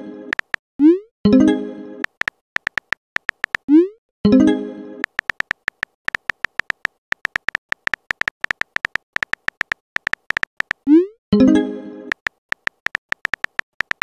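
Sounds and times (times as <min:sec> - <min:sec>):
electronic keyboard tap clicks: 0:00.3 - 0:00.6, 0:02.0 - 0:03.7, 0:05.0 - 0:10.8, 0:12.1 - 0:14.0.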